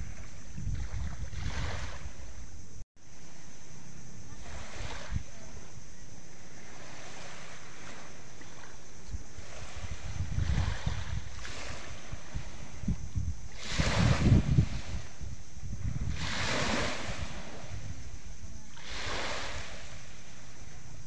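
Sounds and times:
wind rumbling on microphone: 0.0 - 21.0
waves washing onto pebbly shore: 13.5 - 15.2, 16.0 - 17.9, 18.7 - 20.5.

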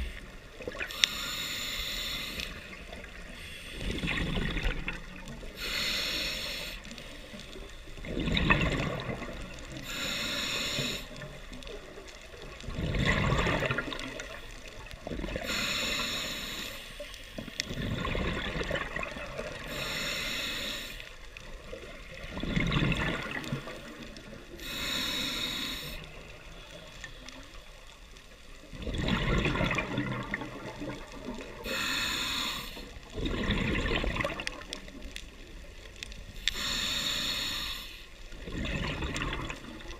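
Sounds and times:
hissing regulator inhale: 0.9 - 4.2, 5.5 - 7.7, 9.6 - 11.3, 15.4 - 17.7, 19.6 - 21.4, 23.7 - 27.2, 31.6 - 33.1, 36.4 - 38.3
gurgling exhaled bubbles: 2.6 - 5.6, 7.9 - 9.9, 11.3 - 15.6, 17.6 - 19.8, 21.5 - 24.5, 28.6 - 31.7, 33.0 - 35.1, 38.3 - 39.9.

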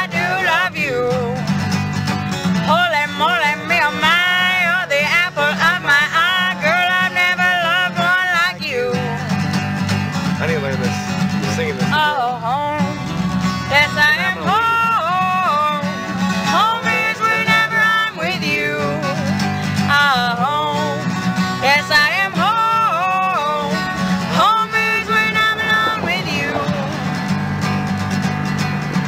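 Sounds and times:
instrumental accompaniment: 0.0 - 29.0
person singing: 2.7 - 9.2.

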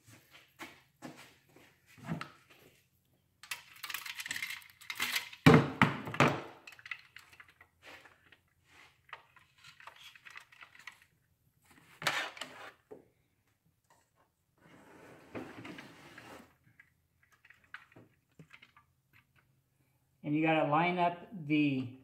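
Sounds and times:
metal tools clinking and rattling: 3.4 - 5.5, 6.6 - 8.1.

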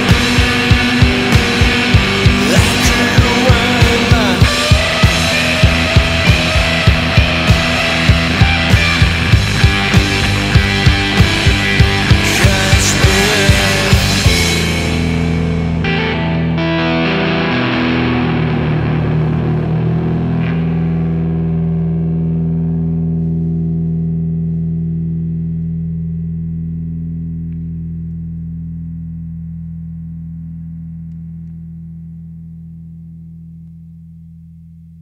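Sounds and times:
distorted electric guitar chord: 0.0 - 33.6
cymbal and drum crash: 1.6 - 6.6.

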